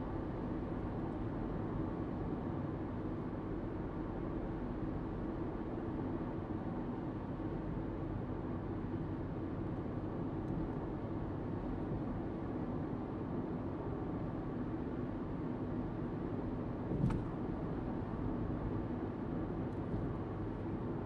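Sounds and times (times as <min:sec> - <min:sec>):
car road noise rumble: 0:00.0 - 0:21.0.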